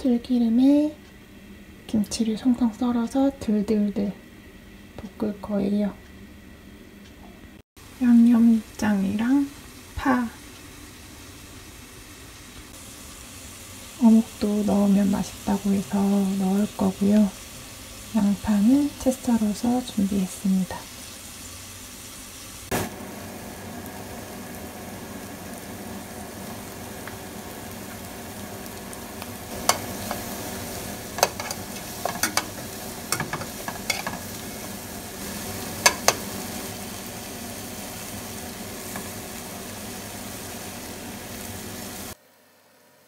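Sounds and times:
food sizzling in a frying pan: 0:07.8 - 0:42.8
tongs clicking against pan: 0:29.6 - 0:30.3, 0:31.1 - 0:34.4, 0:35.8 - 0:36.3.

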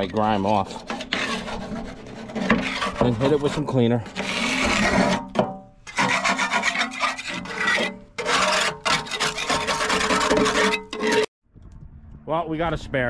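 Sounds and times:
metal scraper scraping rust: 0:00.0 - 0:11.3.

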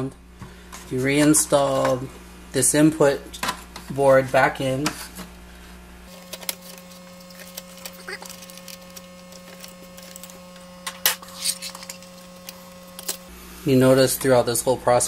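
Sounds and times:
steady low hum: 0:00.0 - 0:15.0
clicks and rattles of wire connectors: 0:06.1 - 0:13.2.

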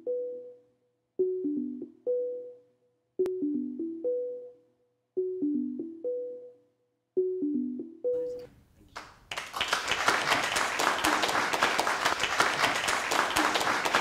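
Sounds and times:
audience clapping: 0:08.9 - 0:14.0.

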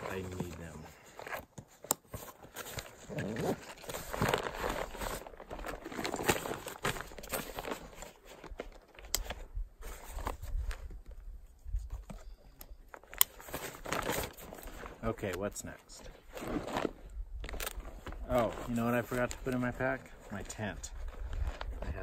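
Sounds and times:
backpack fabric rustling: 0:02.1 - 0:08.6, 0:16.2 - 0:22.0.

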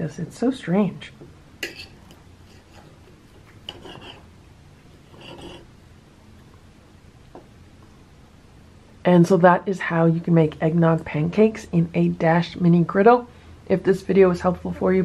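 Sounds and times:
cutlery scraping a ceramic plate: 0:01.6 - 0:04.3, 0:05.0 - 0:05.7.

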